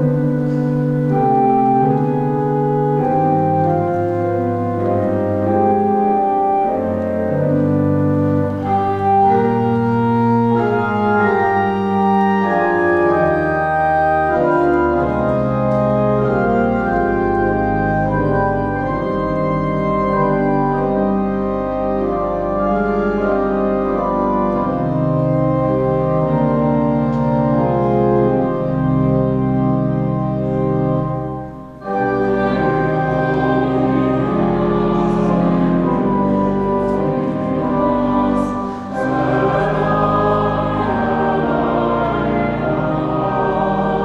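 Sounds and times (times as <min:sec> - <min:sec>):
church organ chords: 0:00.0 - 0:44.0
voices singing a hymn: 0:31.8 - 0:44.0.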